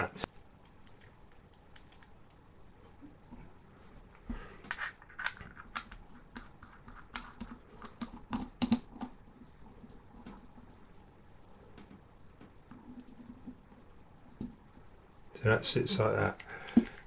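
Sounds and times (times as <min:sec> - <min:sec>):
small metal parts clicking: 0:00.8 - 0:02.2.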